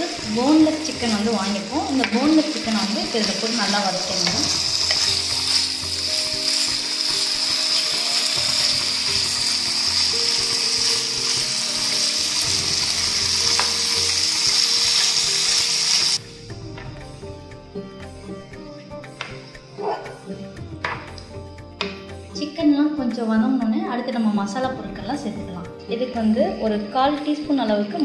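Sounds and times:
chicken sizzling in hot oil: 0.0 - 16.2
soft background music: 0.0 - 28.0.

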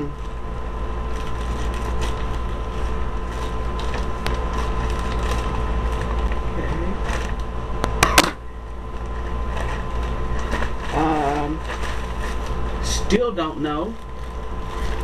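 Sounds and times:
low hum: 0.0 - 15.0
plastic bag crinkling: 0.1 - 7.6, 8.7 - 15.0
small crackles and clicks: 1.1 - 8.0.

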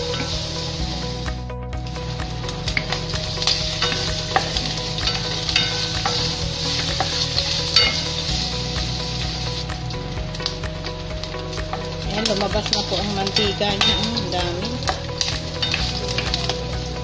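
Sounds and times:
pork sizzling in a wok: 0.0 - 17.0
spatula scraping a pan: 2.7 - 9.7.

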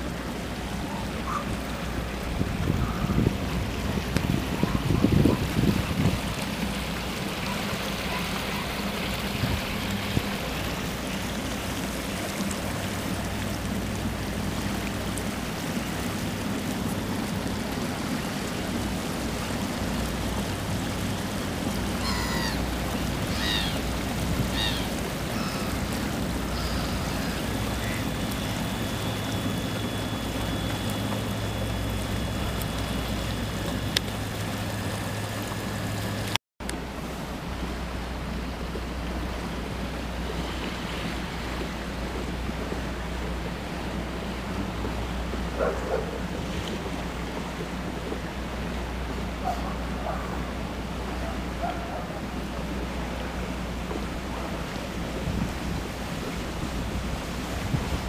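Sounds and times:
motorboat engine humming: 0.0 - 58.0
water washing along hull: 0.0 - 58.0.

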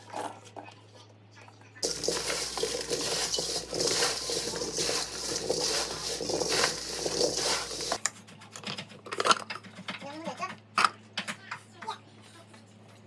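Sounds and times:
radish cubes clattering in steel bowl: 1.8 - 8.0.

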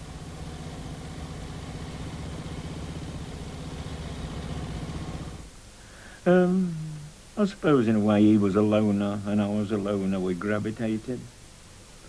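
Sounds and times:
motorcycle engine running: 0.0 - 5.5.

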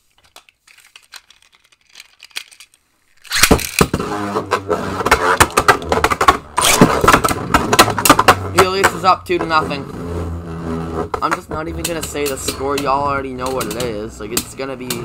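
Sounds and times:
spinning tops clacking together: 0.2 - 4.0
spinning tops whirring and grinding: 1.4 - 9.8
spinning tops launched: 3.2 - 8.8.

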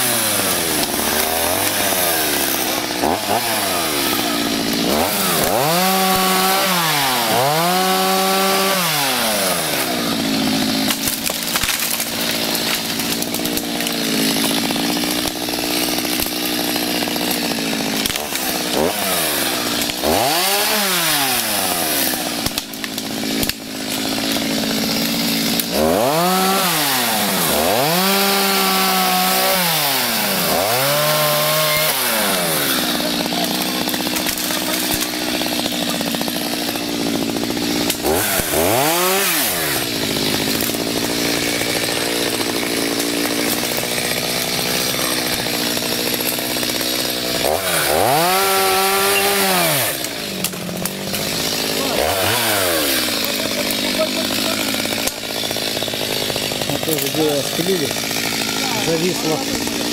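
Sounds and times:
chainsaw revving and running: 0.0 - 59.9.

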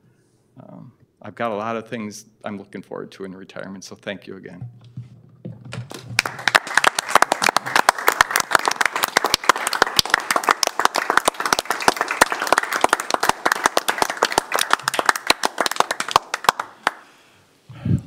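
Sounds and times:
crowd clapping: 5.7 - 17.2.

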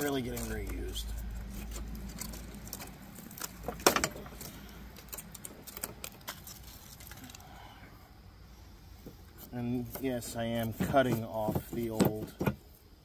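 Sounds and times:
wooden slats clattering: 2.1 - 4.6, 9.8 - 12.6.

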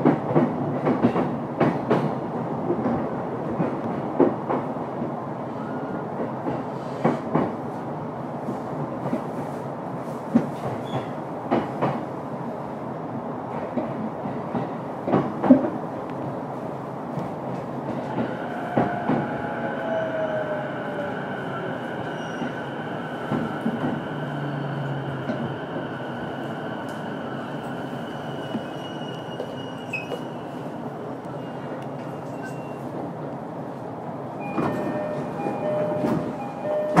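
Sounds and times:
train wheel-on-rail rumble: 0.0 - 37.0
train clunks: 10.3 - 12.1, 13.6 - 15.8, 34.4 - 37.0.

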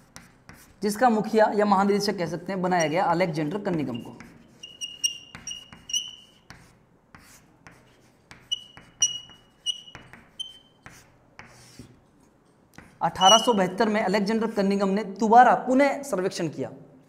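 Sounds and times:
chalk tapping: 0.0 - 0.8, 2.8 - 12.0, 12.7 - 13.8
chalk squeaking on chalkboard: 3.7 - 11.9, 12.8 - 13.8.

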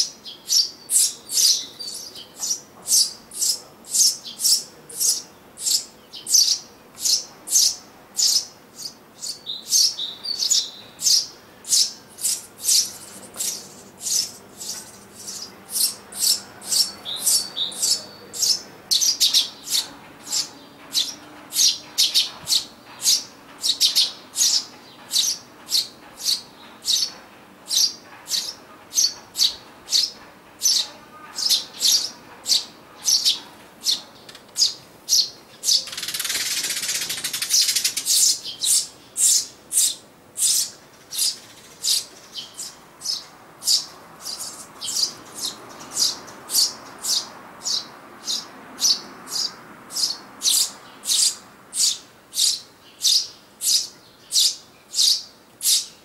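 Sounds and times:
chicks chirping: 0.5 - 27.1, 27.7 - 55.9.

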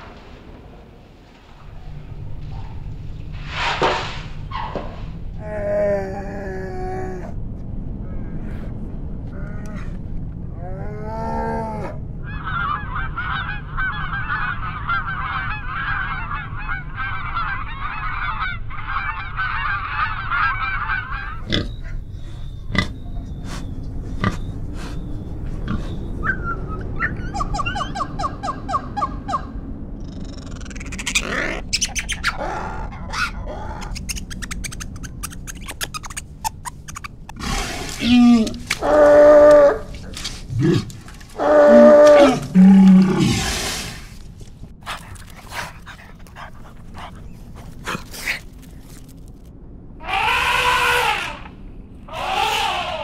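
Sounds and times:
pig grunting: 37.3 - 44.0
short animal calls: 50.0 - 51.5.

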